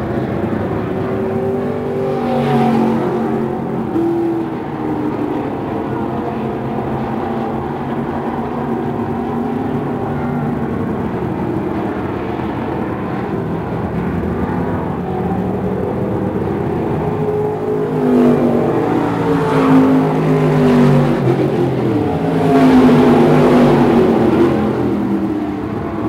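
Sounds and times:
stock car engines racing: 0.0 - 26.0.

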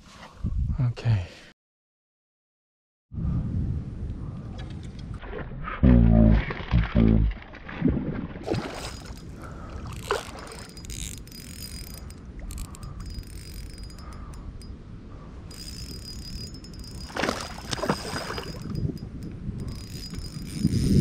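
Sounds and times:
wind rumble on microphone: 0.3 - 0.9, 3.1 - 21.0
fishing reel whirring: 8.8 - 14.7, 15.4 - 21.0.

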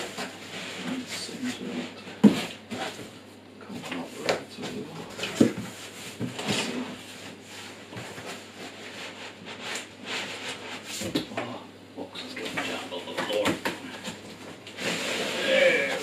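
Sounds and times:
cardboard scraping against foam: 14.7 - 16.0.

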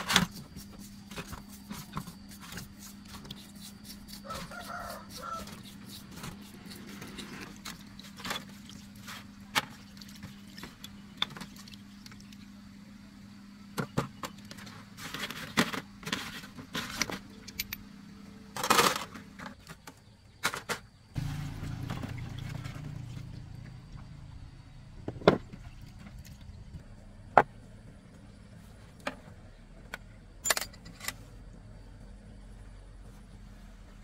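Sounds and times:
brush scrubbing: 0.0 - 9.4
low steady hum: 0.0 - 34.0
metal parts clinking: 30.4 - 31.2.

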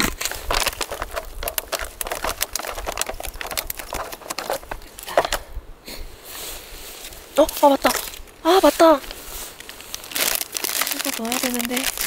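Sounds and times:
foil pouch crinkling: 0.0 - 5.2, 9.4 - 12.0.

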